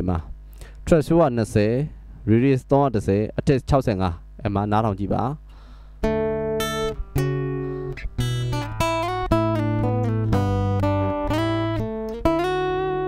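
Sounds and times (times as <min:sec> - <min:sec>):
guitar chords ringing: 0:05.5 - 0:13.0.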